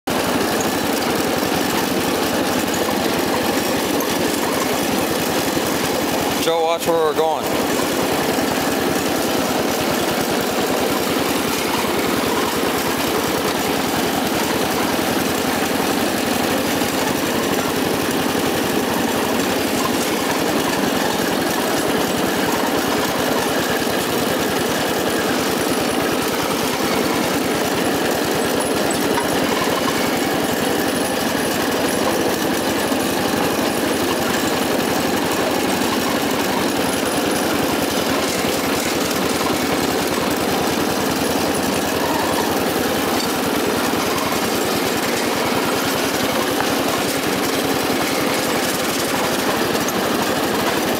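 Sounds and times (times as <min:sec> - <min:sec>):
lawn tractor engine running: 0:00.0 - 0:50.9.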